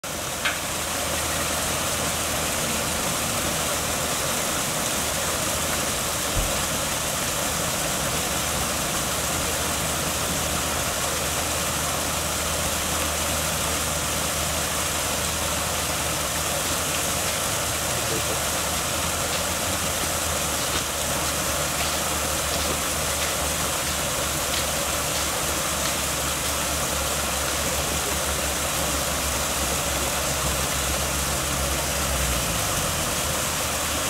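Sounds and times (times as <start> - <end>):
water pouring over weir: 0.0 - 34.0.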